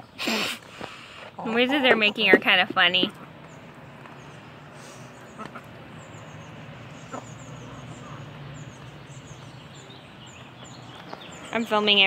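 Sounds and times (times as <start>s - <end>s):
hen clucking softly: 5.3s - 5.8s.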